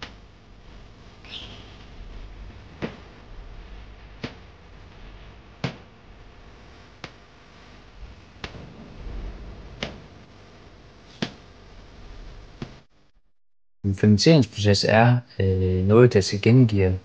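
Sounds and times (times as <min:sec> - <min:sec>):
faint low hum: 0:00.0 - 0:13.2, 0:13.9 - 0:17.0
sharp knocks: 0:02.8 - 0:03.2, 0:08.0 - 0:11.4.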